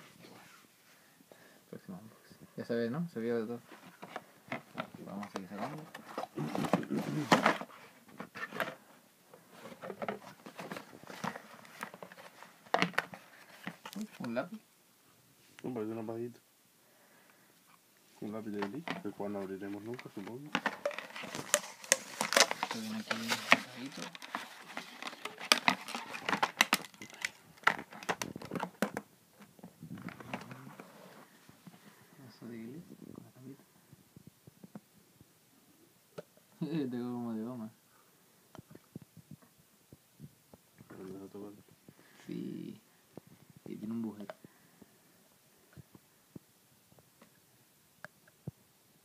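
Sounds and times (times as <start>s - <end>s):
packaging crinkling and crackling: 19.8s - 29.0s.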